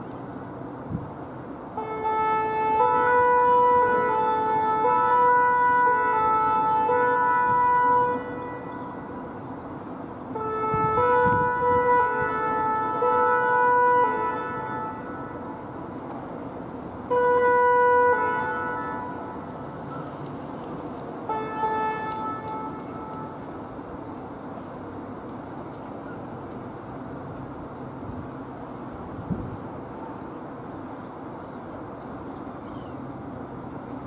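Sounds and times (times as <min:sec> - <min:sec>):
two-tone siren: 0:01.8 - 0:09.3, 0:10.3 - 0:15.5, 0:17.1 - 0:19.3.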